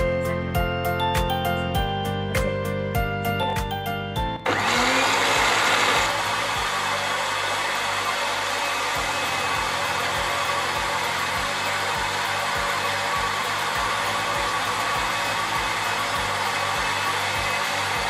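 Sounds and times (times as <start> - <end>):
blender motor grinding: 4.4 - 18.0.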